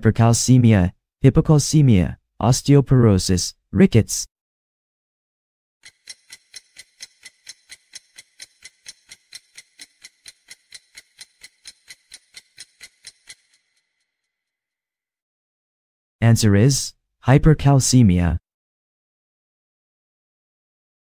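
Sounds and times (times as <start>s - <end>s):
clock ticking: 5.8s - 13.8s.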